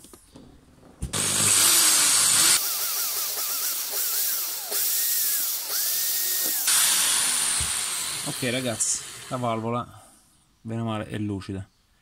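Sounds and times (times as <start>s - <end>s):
electric drill whining: 1.1s - 9.8s.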